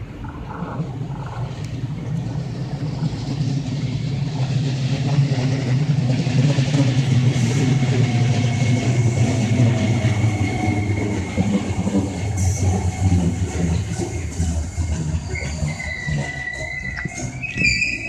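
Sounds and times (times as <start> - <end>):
train wheels on rails: 0.0 - 18.0
thin high squeal: 15.1 - 18.0.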